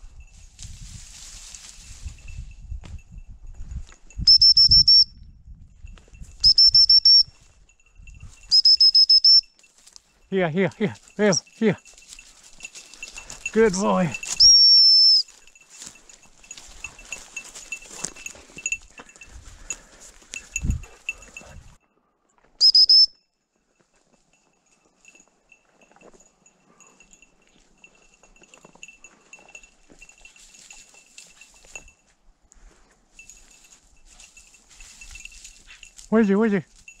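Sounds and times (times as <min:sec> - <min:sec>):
rustling in dry leaves: 0:00.0 - 0:02.5, 0:11.0 - 0:21.1, 0:33.2 - 0:37.0
dog collar jingling: 0:01.3 - 0:04.8, 0:05.7 - 0:21.8, 0:23.7 - 0:32.1, 0:33.0 - 0:37.0
whistle blast: 0:04.2 - 0:05.2, 0:06.4 - 0:07.3, 0:08.5 - 0:09.5, 0:14.4 - 0:15.3, 0:22.6 - 0:23.2.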